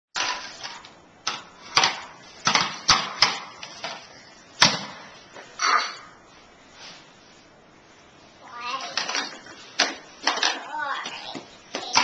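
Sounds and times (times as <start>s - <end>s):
sharp knocks and clatters: 0.2s - 5.1s, 8.8s - 12.0s.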